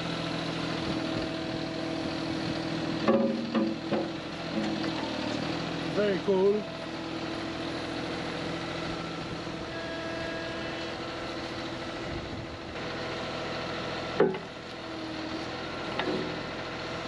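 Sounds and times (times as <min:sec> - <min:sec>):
excavator diesel engine running: 0:00.0 - 0:17.0
hydraulics whining: 0:00.0 - 0:17.0
metal clank of hitch on bucket: 0:03.0 - 0:05.1.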